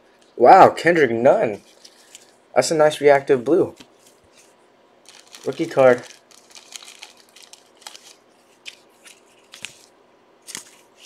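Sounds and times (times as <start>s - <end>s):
trading cards flipped by hand: 5.1s - 11.0s.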